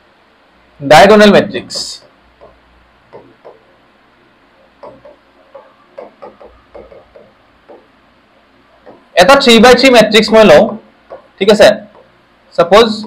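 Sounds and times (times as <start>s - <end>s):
pen scratching on a board: 1.7s - 3.8s, 4.8s - 7.9s.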